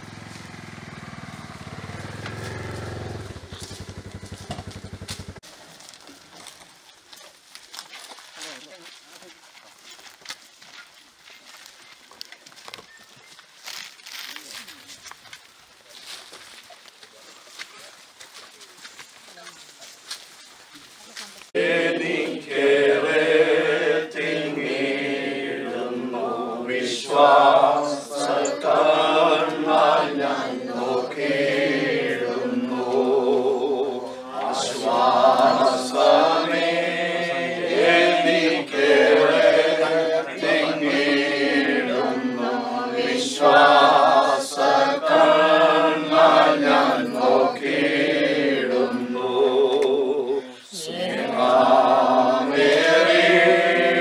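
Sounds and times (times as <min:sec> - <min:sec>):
group singing a hymn: 0:01.2 - 0:04.1, 0:21.5 - 0:54.0.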